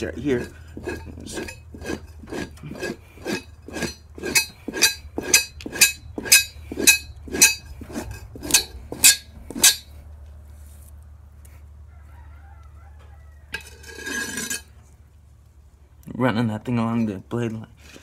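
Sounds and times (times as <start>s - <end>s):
knife scraping hide: 0.0s - 10.0s, 13.6s - 14.8s.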